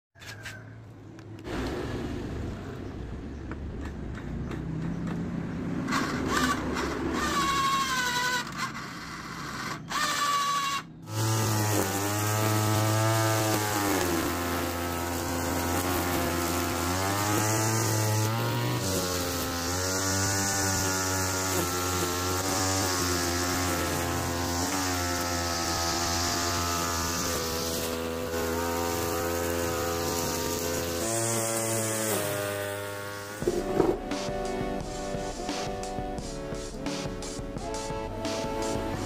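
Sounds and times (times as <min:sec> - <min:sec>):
small two-stroke engine revving: 0:04.8 - 0:39.0
gliding whine: 0:33.4 - 0:39.0.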